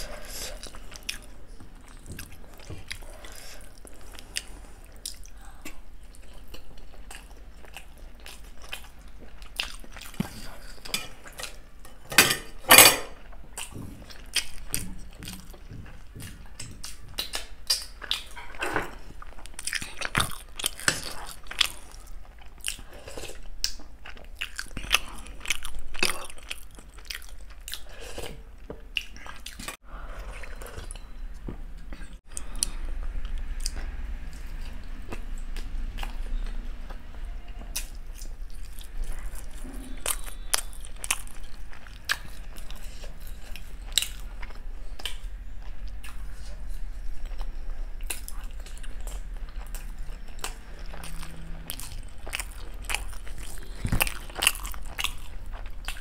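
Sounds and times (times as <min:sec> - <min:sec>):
person chewing and biting: 0:06.2 - 0:11.6, 0:13.6 - 0:29.8, 0:37.7 - 0:56.0.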